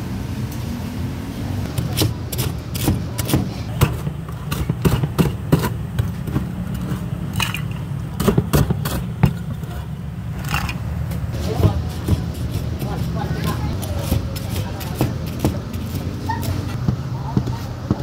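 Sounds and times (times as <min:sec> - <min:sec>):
cleaver chopping crispy fritters: 0:01.7 - 0:07.2, 0:08.1 - 0:09.5, 0:11.4 - 0:16.1.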